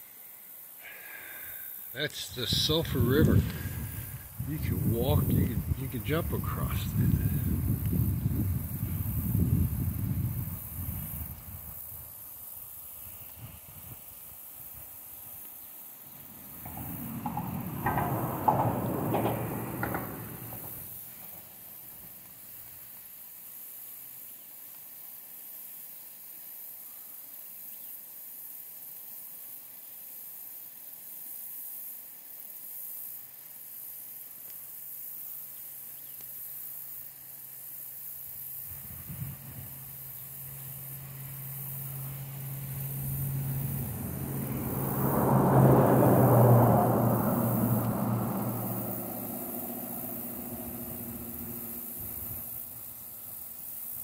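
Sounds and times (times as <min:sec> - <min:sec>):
faint outdoor hiss: 0:00.0 - 0:54.0
loud rushing noise: 0:02.0 - 0:07.6, 0:41.1 - 0:53.2
low engine hum: 0:02.0 - 0:12.0, 0:15.8 - 0:21.0, 0:38.6 - 0:54.0.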